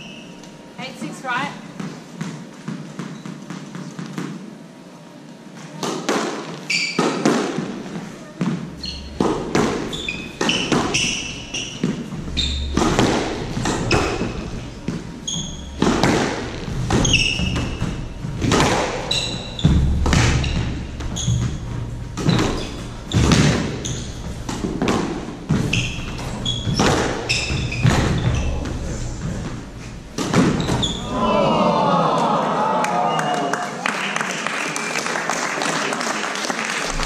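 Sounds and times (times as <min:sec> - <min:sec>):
squash ball hitting racquets and walls: 0:01.7 - 0:04.6, 0:05.7 - 0:31.3
shoes squeaking on hardwood floor: 0:01.8 - 0:04.2, 0:05.6 - 0:31.2.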